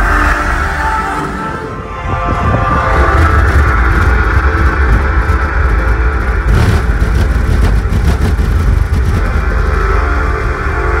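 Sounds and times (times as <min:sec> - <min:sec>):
bass-heavy music through subwoofers: 0:02.0 - 0:11.0.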